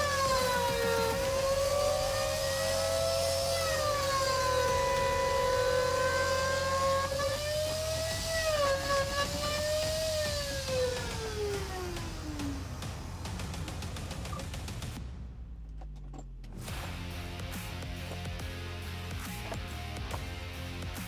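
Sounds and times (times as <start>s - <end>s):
stepper motors whining: 0.0s - 15.0s.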